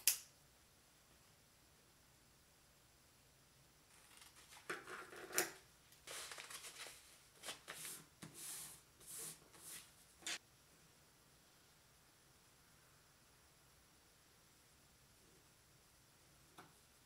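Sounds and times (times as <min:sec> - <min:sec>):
wrapping paper crinkling: 0:06.0 - 0:07.8.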